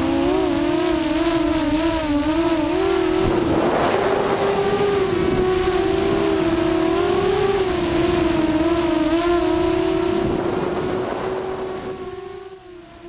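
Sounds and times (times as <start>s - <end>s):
quadcopter motors whining: 0.0s - 13.0s
rushing noise: 2.0s - 12.4s.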